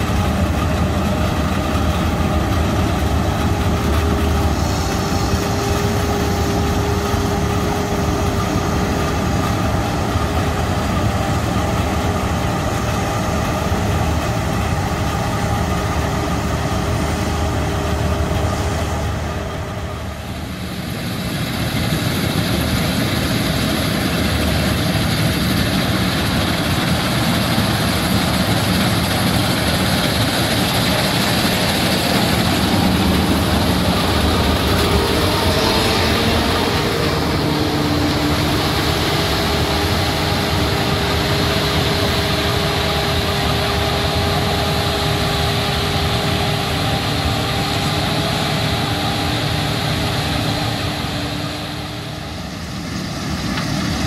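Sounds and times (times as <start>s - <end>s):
combine harvester drone: 0.0s - 54.0s.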